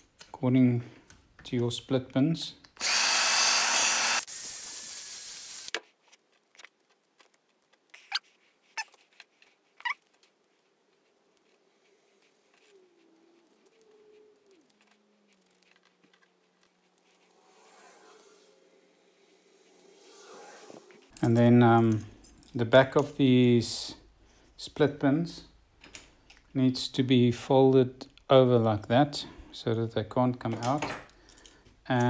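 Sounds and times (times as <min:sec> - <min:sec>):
electric drill running: 0:02.8 - 0:05.7.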